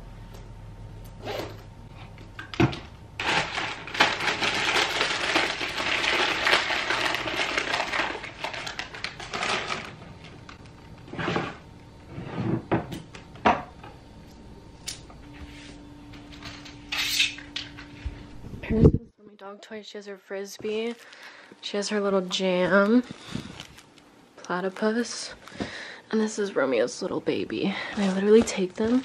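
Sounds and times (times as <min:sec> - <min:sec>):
rustling and clicking of items: 0:02.2 - 0:11.4, 0:27.8 - 0:29.0.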